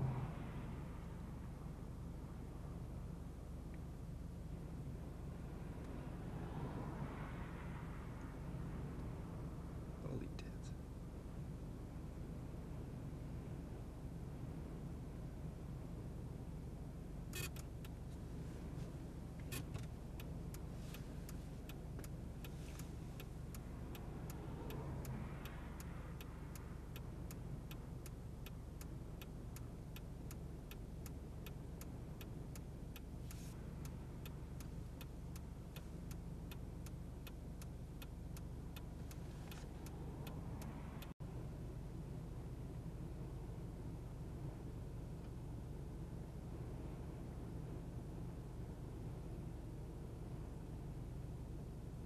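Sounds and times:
vehicle passing: 0.0 - 1.6, 5.5 - 10.1, 22.5 - 28.0
road traffic: 0.0 - 52.0
light ticking: 17.3 - 41.2.

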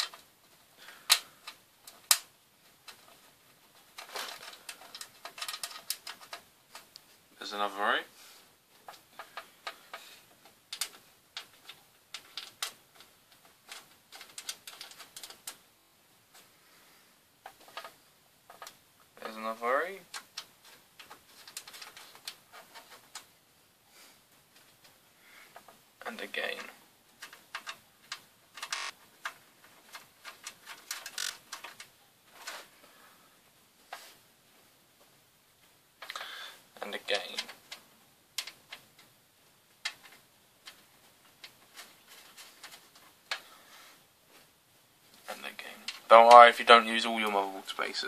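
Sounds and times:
small metallic clicks and ticks: 1.0 - 7.1, 8.8 - 15.6, 19.8 - 23.3, 25.5 - 32.6, 36.0 - 39.1.

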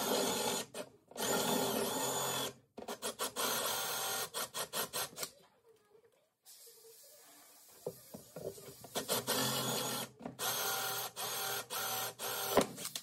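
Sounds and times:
drill with hole saw cutting wood: 0.0 - 5.1, 8.9 - 12.7.

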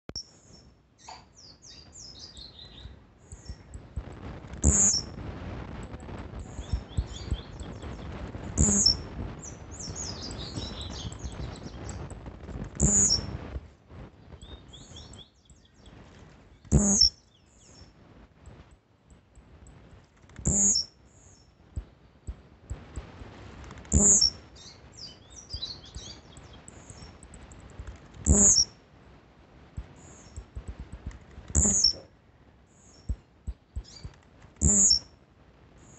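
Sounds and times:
thin bird chirps: 0.1 - 3.8, 4.6 - 5.1, 6.4 - 12.1, 12.8 - 13.3, 14.2 - 17.9, 20.4 - 21.6, 23.9 - 28.8, 31.6 - 32.1, 33.8 - 35.1
bird singing short sharp song: 0.2 - 3.8, 4.6 - 5.1, 6.4 - 12.1, 12.8 - 13.3, 14.2 - 17.9, 20.4 - 21.5, 23.9 - 27.2, 28.3 - 28.7, 31.6 - 32.1, 32.8 - 35.1.

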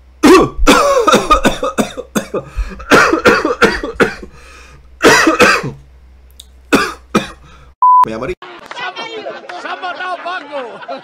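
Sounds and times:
man coughing: 0.2 - 4.4, 5.0 - 5.8, 6.7 - 7.6.

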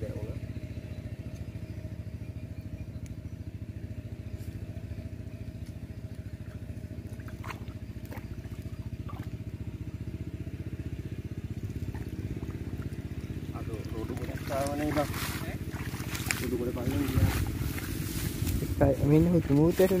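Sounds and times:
small engine idling: 0.0 - 20.0
faint water splashes: 6.4 - 9.7, 11.6 - 20.0.

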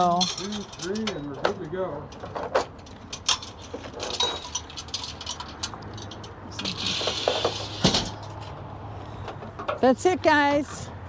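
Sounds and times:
metal ramp clinking and rattling: 0.0 - 8.5
metal ramp scraping slide: 6.6 - 8.3.

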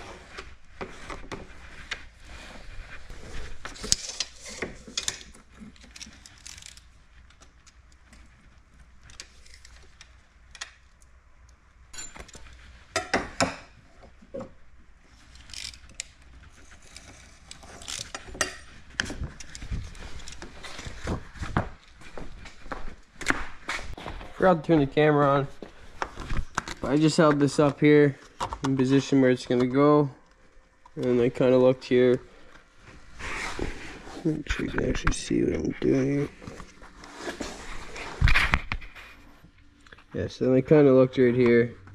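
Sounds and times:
clicks and rattles of tape measure: 3.7 - 8.0, 15.2 - 20.5.

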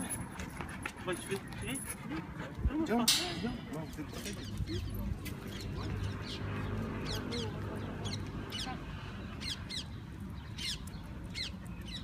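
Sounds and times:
small birds chirping: 2.9 - 12.0.

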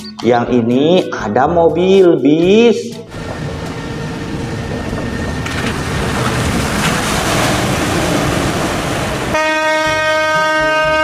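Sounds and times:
loud rushing noise: 3.1 - 9.6.

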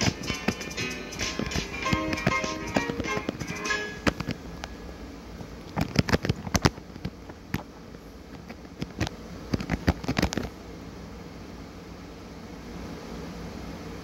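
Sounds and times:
sharp clicks and crackles: 0.0 - 4.8, 5.6 - 10.6
background hiss: 0.0 - 14.0.

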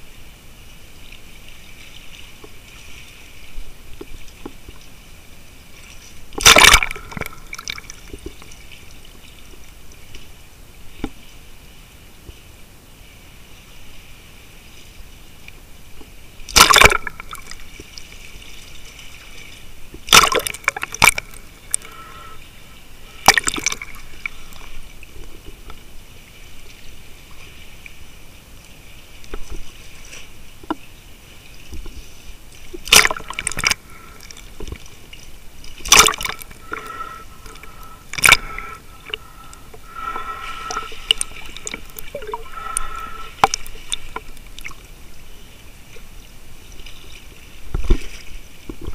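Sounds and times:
faint steady whine: 0.0 - 48.9
underwater moving water: 0.0 - 48.9
sharp underwater knocks: 6.4 - 8.4, 16.5 - 17.6, 19.9 - 22.1, 23.2 - 24.0, 32.7 - 34.8, 35.8 - 44.7.

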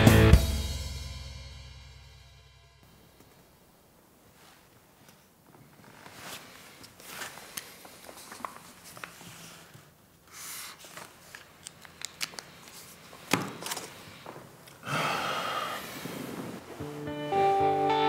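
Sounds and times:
book pages rustling: 4.3 - 14.8.

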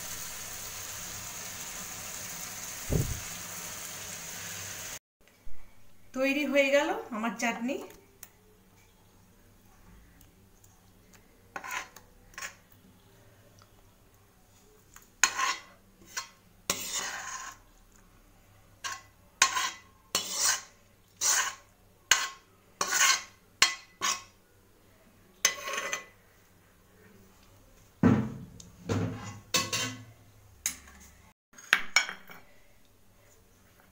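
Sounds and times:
spoon scraping metal pan: 11.5 - 12.6, 15.2 - 17.6, 18.8 - 24.3, 25.4 - 26.2, 29.0 - 31.2.

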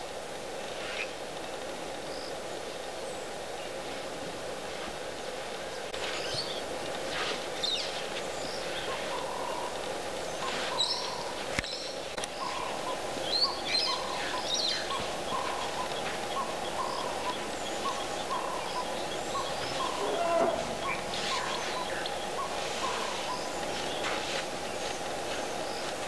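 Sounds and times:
steady background hum: 0.0 - 26.0
short low bird call: 19.8 - 21.6.

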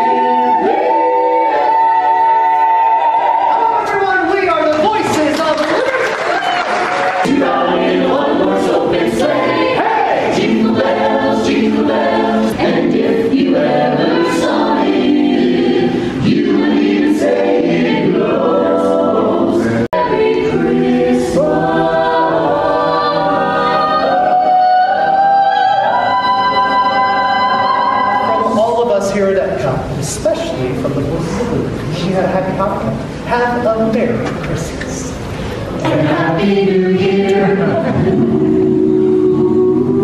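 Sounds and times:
mixed choir singing in harmony: 0.0 - 3.8, 6.5 - 29.2, 35.2 - 40.0.

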